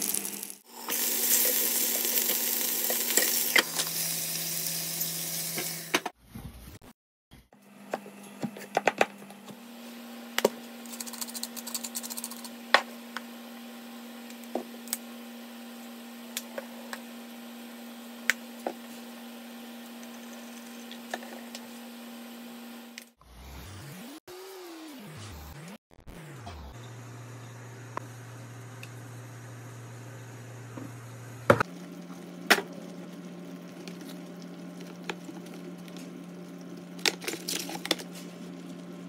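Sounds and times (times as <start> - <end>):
low hum: 25.2 - 39.0.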